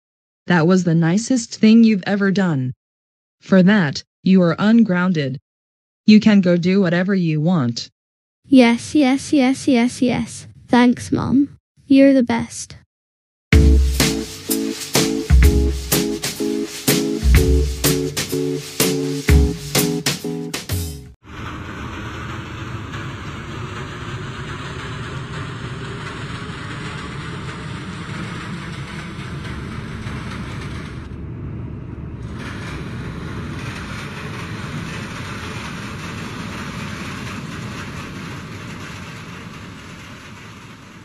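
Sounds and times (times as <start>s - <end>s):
subway train running: 13.6s - 20.5s, 21.3s - 41.0s.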